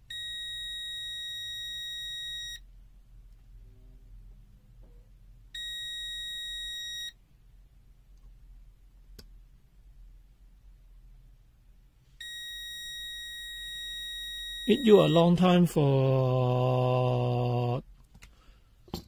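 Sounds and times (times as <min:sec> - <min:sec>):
multimeter continuity beeps: 0:00.1 - 0:02.7, 0:05.6 - 0:07.2, 0:12.2 - 0:15.6.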